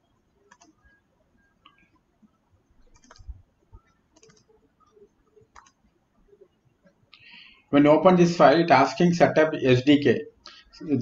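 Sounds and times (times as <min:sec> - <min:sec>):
computer mouse clicks: 0:00.4 - 0:01.0, 0:02.8 - 0:05.9.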